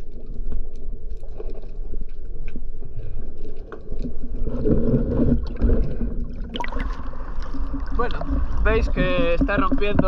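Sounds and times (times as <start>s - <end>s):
small underwater clicks: 0.0s - 10.0s
muffled underwater bubbling: 3.0s - 10.0s
water splashing: 3.0s - 10.0s.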